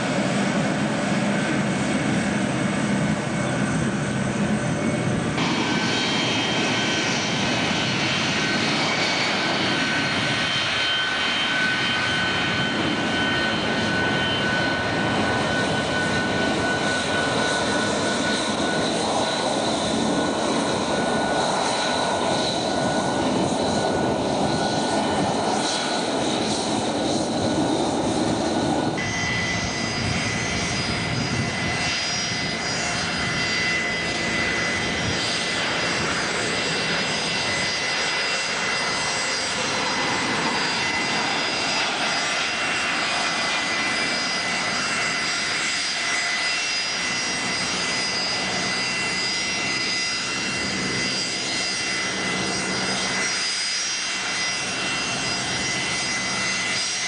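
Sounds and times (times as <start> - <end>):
jet engines whining: 0.0 - 57.0.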